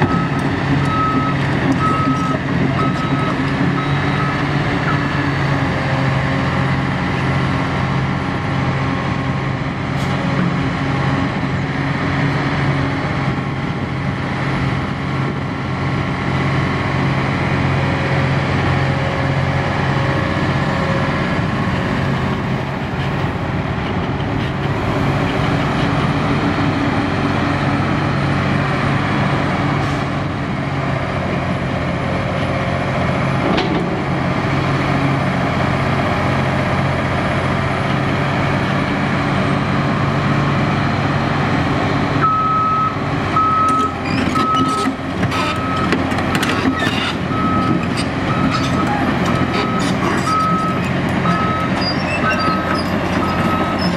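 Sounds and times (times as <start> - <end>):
diesel engine running: 0.0 - 53.9
travel alarm beeping: 42.2 - 44.7.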